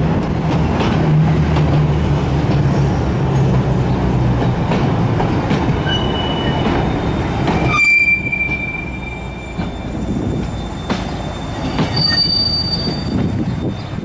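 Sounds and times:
train wheels rumbling and clanking: 0.0s - 14.0s
train wheels squealing: 5.8s - 14.0s.

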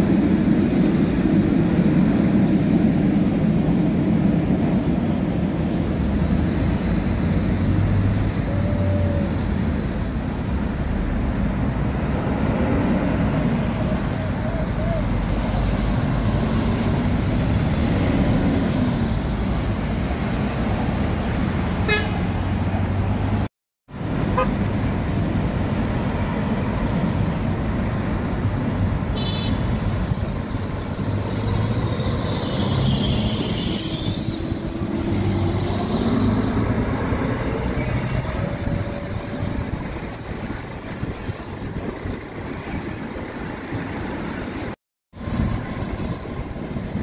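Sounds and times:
bus engines rumbling: 0.0s - 47.0s
horns honking: 21.8s - 22.3s, 24.3s - 24.6s.

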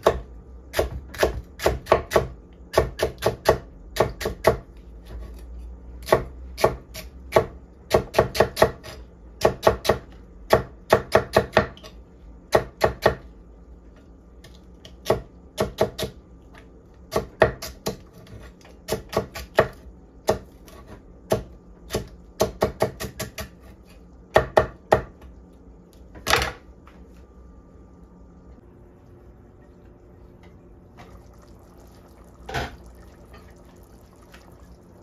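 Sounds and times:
knife chopping on wooden board: 17.1s - 23.7s.

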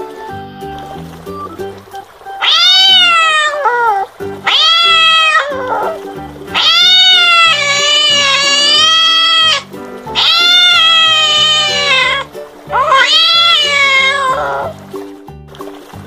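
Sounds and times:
background music: 0.0s - 16.0s
cat meowing: 2.4s - 14.8s.

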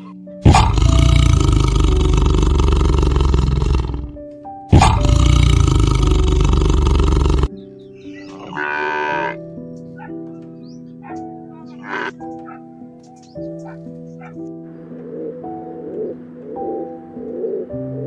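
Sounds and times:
soft piano music: 0.0s - 3.2s, 4.1s - 18.0s
tiger roaring: 0.4s - 7.5s.

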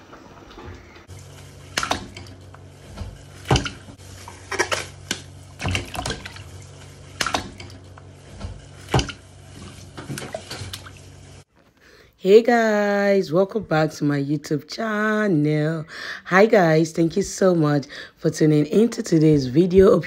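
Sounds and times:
low steady hum: 0.0s - 11.5s
wet squelches and splashes: 3.3s - 7.8s, 8.7s - 11.3s.

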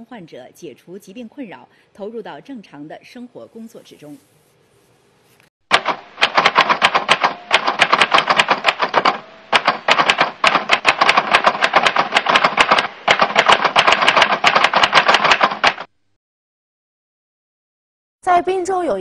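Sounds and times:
typewriter keystroke clicks: 5.7s - 15.9s.

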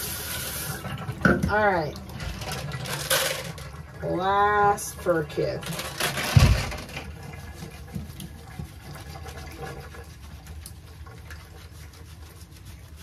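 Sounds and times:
hands scrubbing wet lather: 0.0s - 0.9s, 4.0s - 6.2s, 6.9s - 13.0s.

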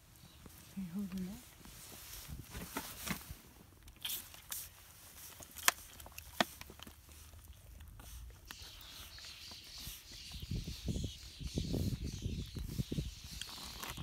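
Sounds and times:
handling rustle: 0.2s - 9.2s
animal suckling at bottle teat: 3.8s - 14.0s.

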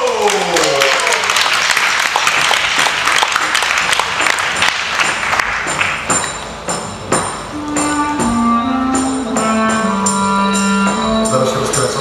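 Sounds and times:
audience applause: 0.0s - 6.0s
band music: 5.7s - 12.0s.

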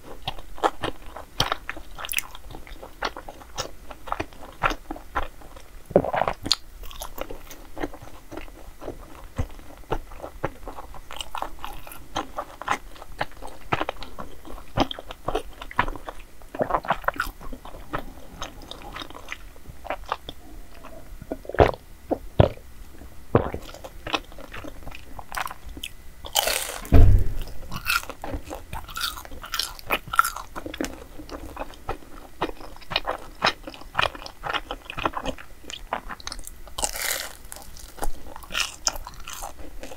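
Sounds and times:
close-miked chewing: 0.0s - 26.9s, 27.7s - 39.9s
thump: 26.8s - 28.0s.

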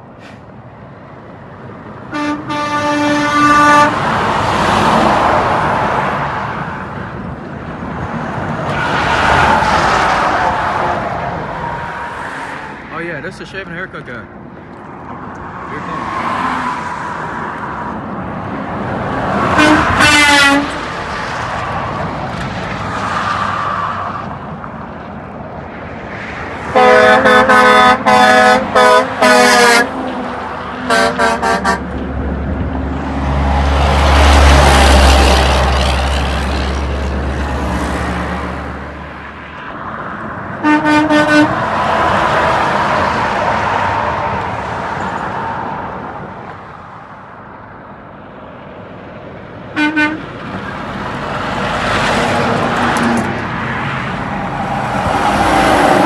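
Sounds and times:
heavy truck passing: 0.0s - 56.0s
traffic noise: 0.0s - 56.0s
truck air horn blasts: 2.1s - 4.1s, 19.5s - 20.8s, 26.7s - 30.0s, 30.8s - 31.9s, 40.6s - 41.6s, 49.8s - 50.3s.

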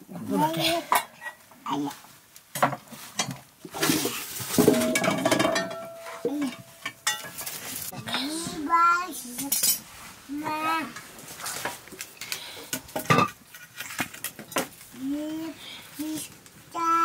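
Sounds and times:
metal pots and ladle clinking: 2.6s - 8.1s, 9.4s - 9.9s, 12.8s - 14.7s.

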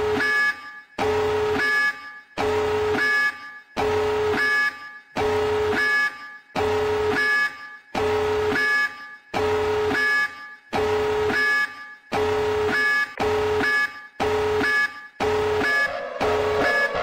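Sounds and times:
electronic warning alarm: 0.0s - 17.0s.

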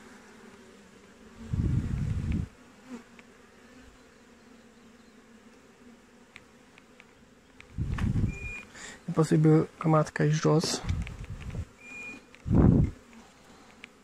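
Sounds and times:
honeybees buzzing: 0.0s - 14.0s
low rumble on microphone: 1.4s - 2.5s, 7.7s - 8.6s, 10.8s - 11.7s, 12.4s - 13.0s
faint ticks: 1.8s - 2.5s, 6.3s - 8.8s, 10.8s - 14.0s.

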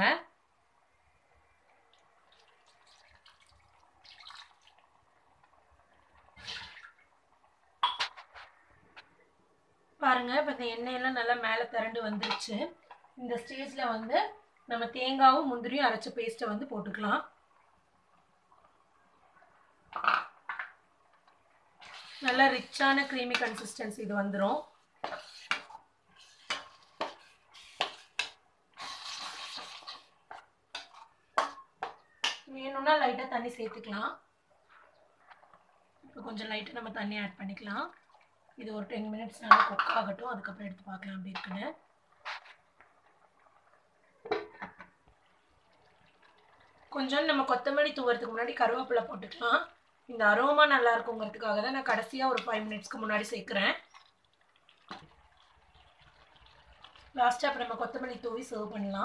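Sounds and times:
water splashing: 1.9s - 4.9s, 53.8s - 58.1s
water poured into a metal pan: 1.9s - 5.1s, 26.2s - 30.1s, 52.5s - 58.9s.

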